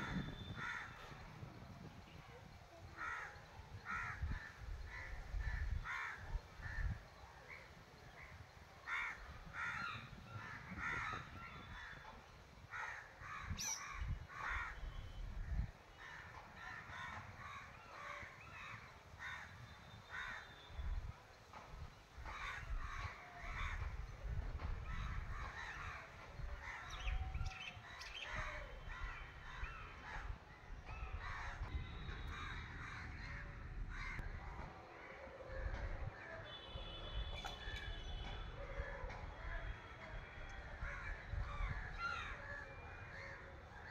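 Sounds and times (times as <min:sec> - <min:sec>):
crows cawing: 0:00.0 - 0:01.0, 0:03.0 - 0:07.0, 0:08.8 - 0:12.0, 0:12.7 - 0:13.6, 0:14.3 - 0:14.8, 0:16.0 - 0:20.6.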